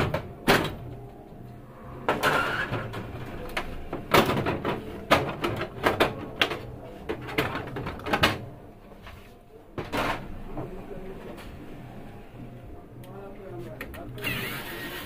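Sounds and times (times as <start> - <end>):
plastic knocks and clatters: 3.5 - 8.5.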